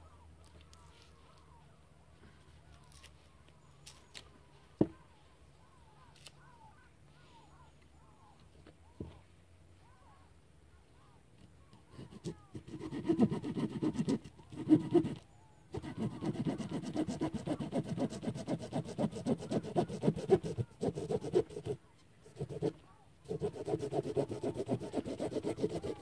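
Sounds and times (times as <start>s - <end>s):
hand saw rasping through branch: 12.0s - 26.0s.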